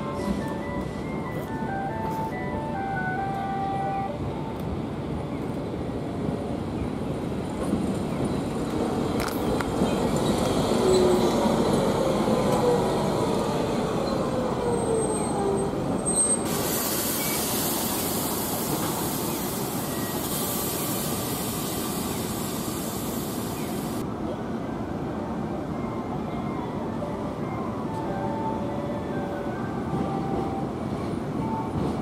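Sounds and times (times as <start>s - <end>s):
street noise: 0.0s - 32.0s
high hiss: 16.5s - 24.0s.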